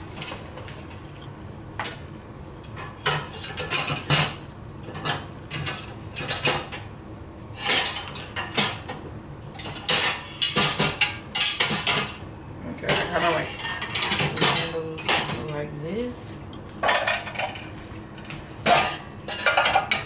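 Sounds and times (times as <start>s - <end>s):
metal pots and pans clanking: 2.8s - 4.4s, 9.6s - 12.2s, 12.8s - 15.4s, 16.8s - 20.0s.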